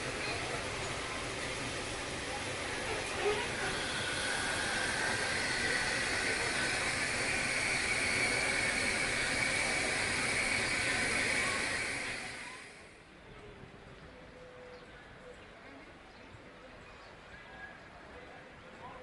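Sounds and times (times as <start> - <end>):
steam locomotive venting steam: 0.0 - 13.1.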